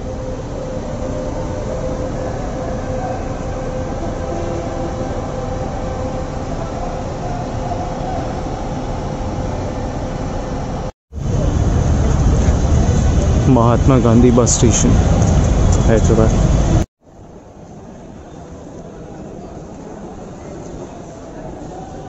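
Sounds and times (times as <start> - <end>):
engines humming: 0.0 - 16.9
traffic rumble: 0.0 - 16.9.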